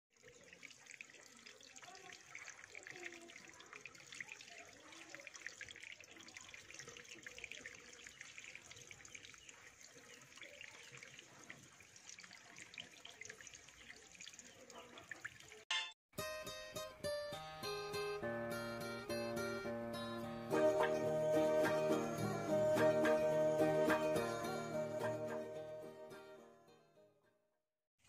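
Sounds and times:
water trickling: 0.1s - 15.7s
small water drips and splashes: 0.1s - 15.8s.

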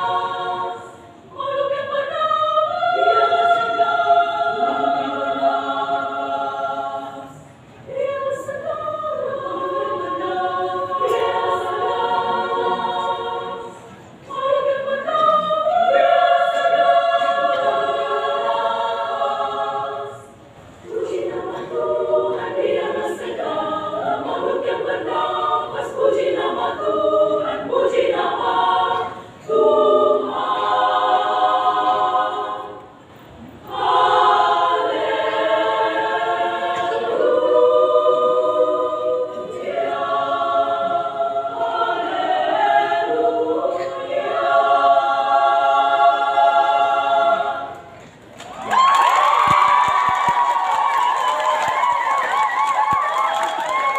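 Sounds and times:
women's choir singing in harmony: 0.0s - 53.9s.

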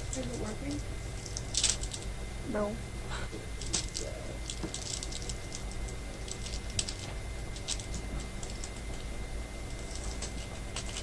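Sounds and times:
steady low hum: 0.0s - 11.0s
paper crinkling: 3.6s - 9.0s, 9.6s - 11.0s.

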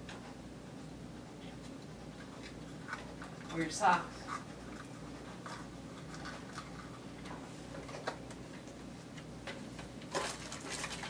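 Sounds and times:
low room hum: 0.0s - 11.0s
packaging clicks and rustles: 9.5s - 11.0s.

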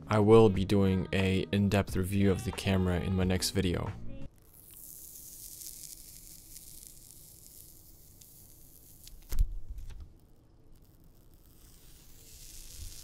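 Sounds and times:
plastic film peeling crackle: 4.3s - 13.0s.

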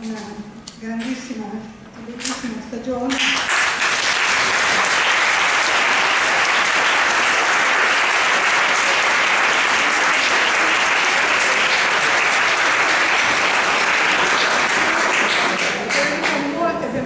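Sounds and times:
audience applause: 3.2s - 16.5s.

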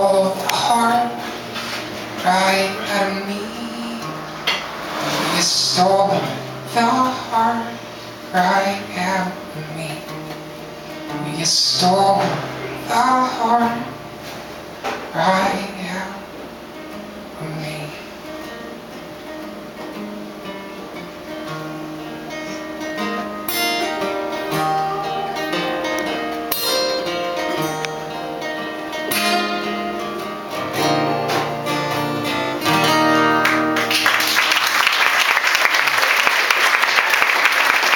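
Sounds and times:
acoustic guitars playing: 0.0s - 35.0s
audience applause: 33.4s - 37.9s.

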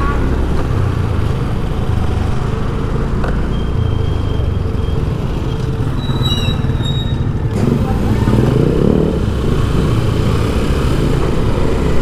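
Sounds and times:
vehicle engines humming: 0.0s - 12.0s.

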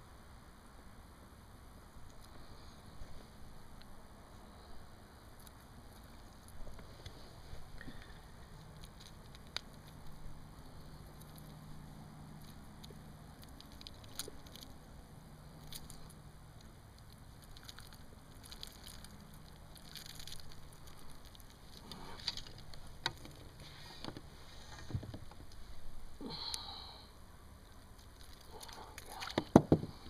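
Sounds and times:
small clicks and rustles: 5.4s - 26.6s, 27.6s - 30.0s
sharp knocks: 29.4s - 30.0s.

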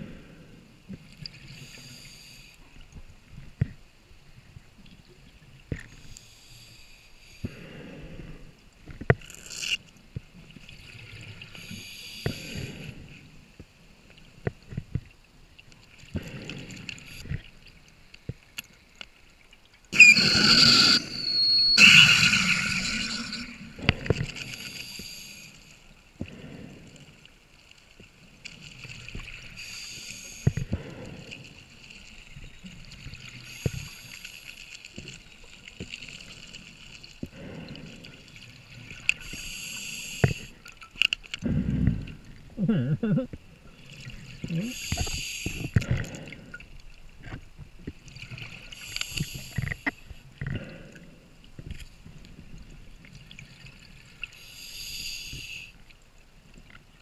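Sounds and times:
regulator inhalation hiss: 11.6s - 12.9s, 24.4s - 25.8s, 29.6s - 31.1s, 39.2s - 40.6s, 44.6s - 45.8s, 48.8s - 50.0s, 54.4s - 55.8s
brief whistle: 20.0s - 23.5s
rushes of air inflating buoy: 20.0s - 25.5s.

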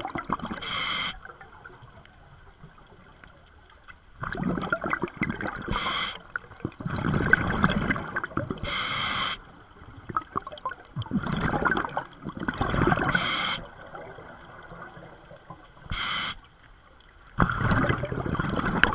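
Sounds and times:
exhaled air bubbling underwater: 0.0s - 18.9s
regulator hiss: 0.6s - 1.2s, 5.7s - 6.2s, 8.7s - 9.4s, 13.1s - 13.7s, 15.8s - 16.5s.

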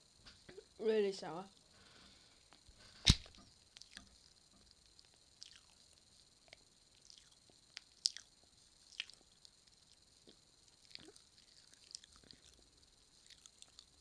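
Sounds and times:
mouth chewing candy: 2.5s - 14.0s.

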